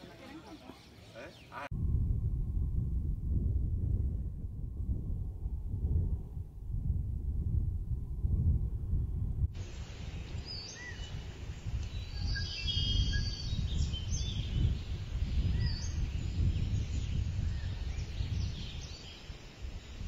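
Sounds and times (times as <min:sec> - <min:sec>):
low wind rumble: 0:01.7 - 0:20.0
birds chirping and whistling: 0:10.1 - 0:20.0.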